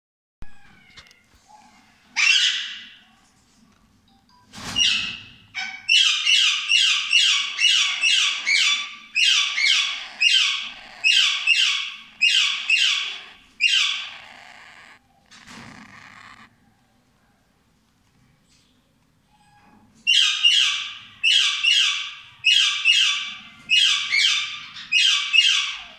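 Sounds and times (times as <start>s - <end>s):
parakeets squawking: 4.9s - 16.5s.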